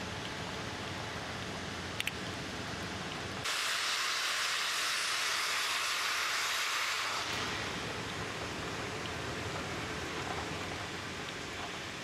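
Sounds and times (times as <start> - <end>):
loud hiss of gas release: 3.4 - 7.7.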